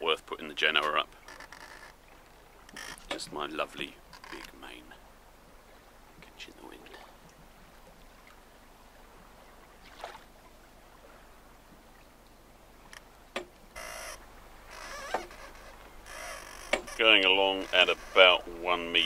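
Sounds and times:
water lapping against hull: 0:00.0 - 0:19.0
boat fittings knocking and creaking: 0:00.7 - 0:02.0, 0:02.6 - 0:03.4, 0:04.0 - 0:04.6, 0:12.9 - 0:18.6.

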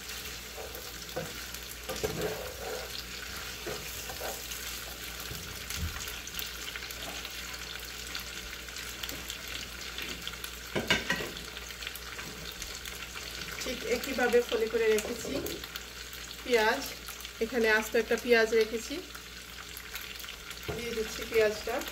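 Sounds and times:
food sizzling in frying pan: 0:00.0 - 0:21.9
wooden spatula scraping pan: 0:00.1 - 0:05.2.

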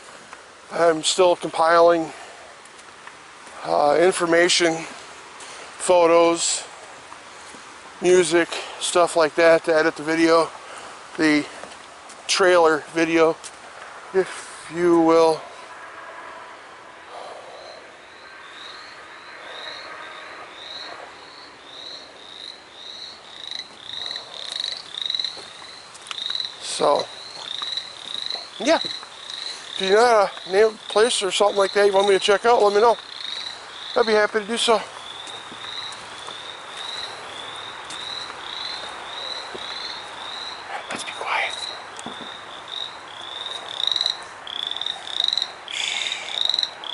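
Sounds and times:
frog chorus: 0:14.1 - 0:46.9
frog high-pitched peeps: 0:35.0 - 0:46.9
chorus of frogs din: 0:41.7 - 0:46.9.

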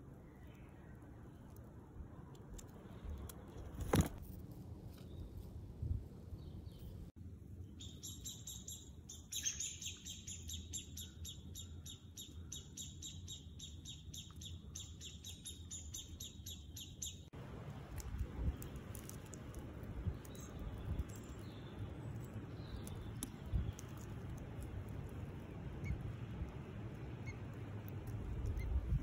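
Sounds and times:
nestlings chirping: 0:07.7 - 0:29.0.

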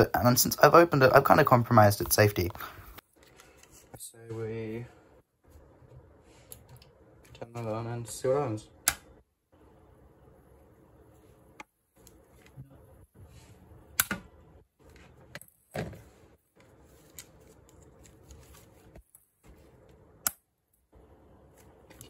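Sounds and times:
plastic lamp clicks: 0:08.8 - 0:09.1.

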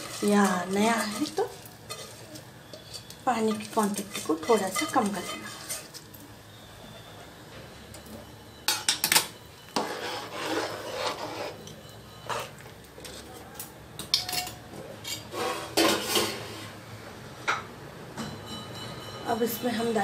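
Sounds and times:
metal utensil scraping pot: 0:00.0 - 0:06.1, 0:09.7 - 0:13.3, 0:14.1 - 0:16.7.

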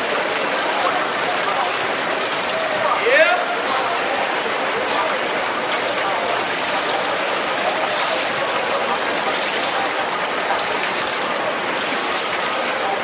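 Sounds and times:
pool water splashing: 0:00.0 - 0:13.0.

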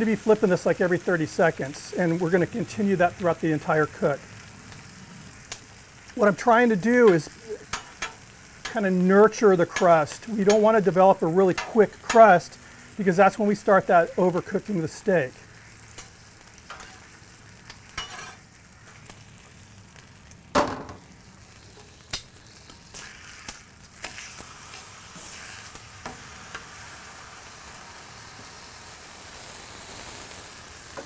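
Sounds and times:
steaks sizzling on a griddle: 0:00.0 - 0:31.0
metal clicks and scrapes on griddle: 0:06.8 - 0:09.0, 0:09.6 - 0:10.8, 0:11.4 - 0:12.4, 0:15.6 - 0:21.0, 0:21.6 - 0:26.9.

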